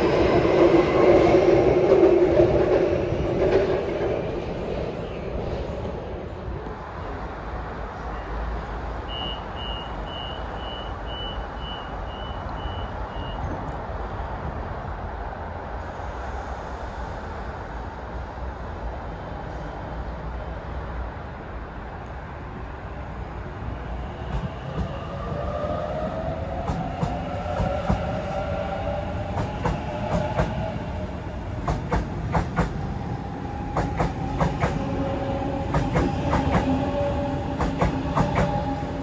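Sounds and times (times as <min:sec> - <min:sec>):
stationary train hum: 0:00.0 - 0:39.0
train door warning beeps: 0:09.1 - 0:13.6.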